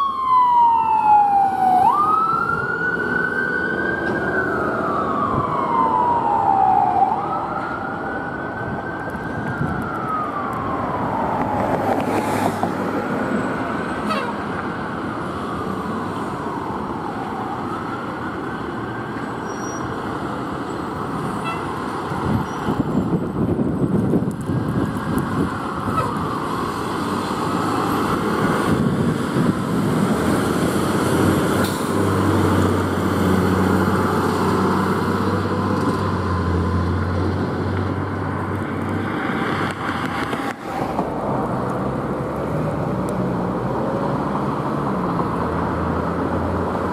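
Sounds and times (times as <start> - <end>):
fire truck siren wailing: 0.0 - 46.9
truck engine rumble: 12.6 - 46.9.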